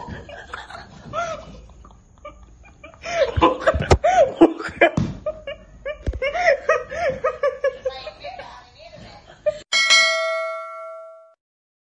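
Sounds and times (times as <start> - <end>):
people laughing: 0.0 - 8.6.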